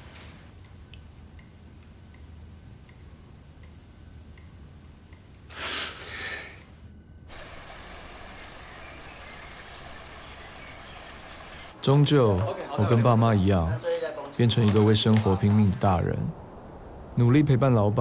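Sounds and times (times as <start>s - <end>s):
outdoor ambience hiss: 0.0s - 18.0s
faint regular ticks: 0.1s - 6.1s
low hum: 7.3s - 11.8s.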